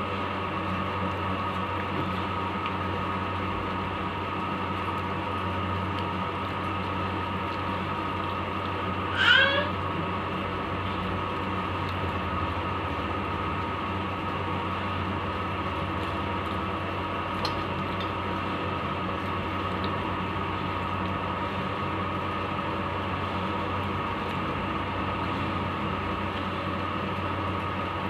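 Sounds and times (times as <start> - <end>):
mechanical hum with tones: 0.0 - 28.0.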